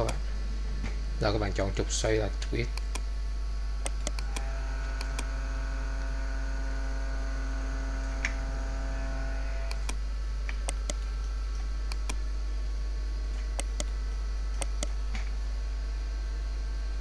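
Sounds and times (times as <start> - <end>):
electrical mains hum: 0.0 - 17.0
higher-pitched hum: 0.0 - 17.0
computer mouse clicks: 3.8 - 5.3, 9.7 - 11.0, 11.9 - 12.2, 13.6 - 13.9, 14.6 - 15.0.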